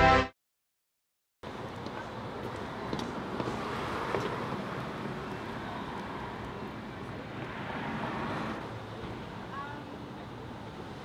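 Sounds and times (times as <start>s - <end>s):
distant traffic: 1.4s - 11.0s.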